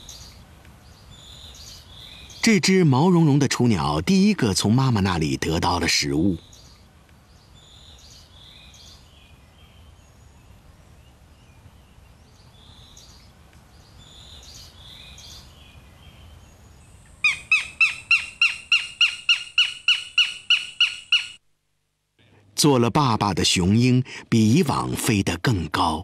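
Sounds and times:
hawk sharp rapid calls: 17.2 - 21.4.

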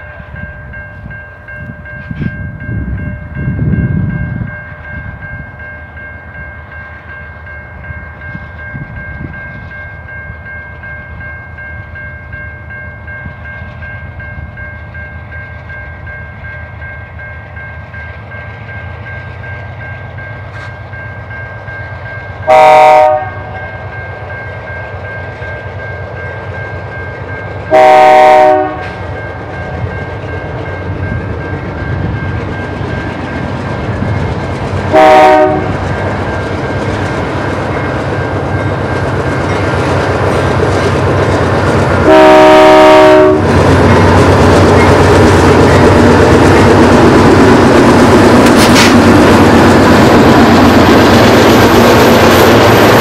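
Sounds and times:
freight train rumble: 0.0 - 53.0
locomotive air horn blasts: 22.5 - 23.6, 27.7 - 29.0, 34.9 - 35.8, 42.0 - 43.6.

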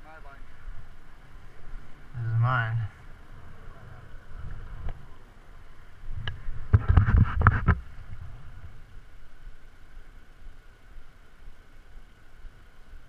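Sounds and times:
wind rumbling on microphone: 0.0 - 13.0
short knocks and rustles: 6.3 - 7.9.

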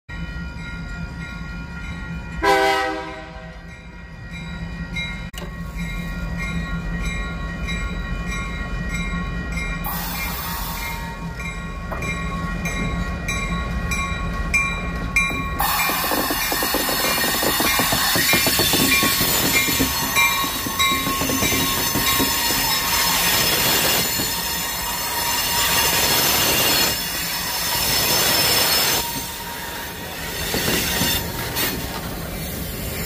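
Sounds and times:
rushing train wheels: 0.1 - 33.0
diesel locomotive engine running: 0.6 - 33.0
locomotive horn blast: 2.4 - 3.7.

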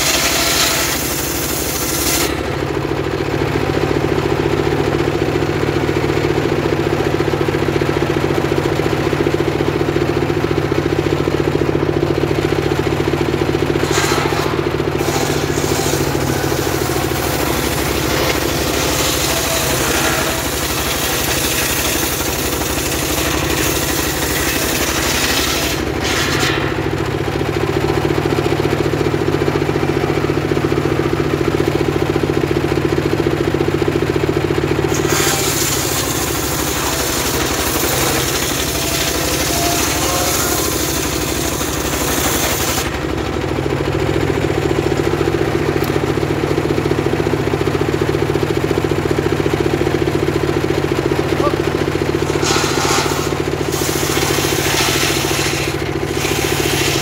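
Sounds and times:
saw blade ripping log: 0.0 - 2.5, 13.7 - 26.9, 34.8 - 43.1, 51.9 - 57.0
saw engine running: 0.0 - 57.0.

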